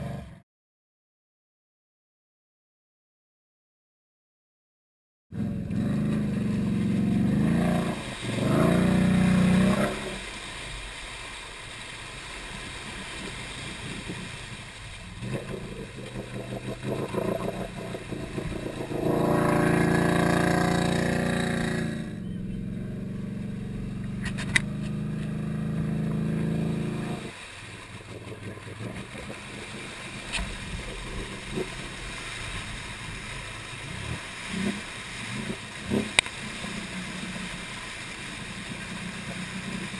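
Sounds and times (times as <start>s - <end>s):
atv engine revving: 0.0s - 0.4s, 5.4s - 10.3s, 13.1s - 27.4s, 28.3s - 39.9s
vehicle pushing through mud and water: 5.4s - 39.9s.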